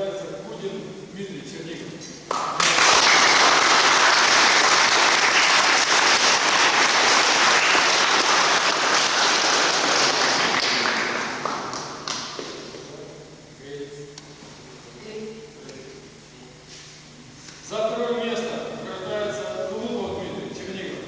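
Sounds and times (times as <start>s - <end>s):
audience applauding: 2.3s - 12.5s.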